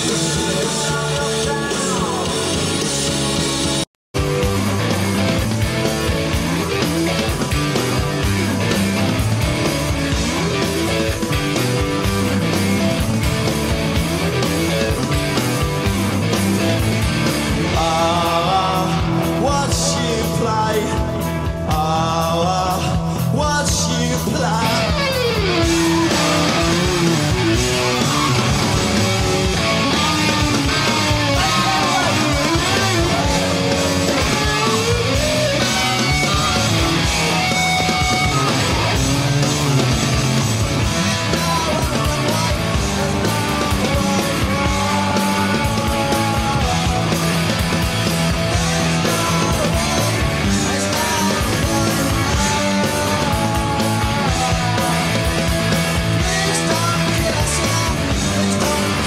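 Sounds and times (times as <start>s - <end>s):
person singing: 0.0s - 2.8s, 17.7s - 47.6s, 48.5s - 59.0s
rock band playing: 0.0s - 59.0s.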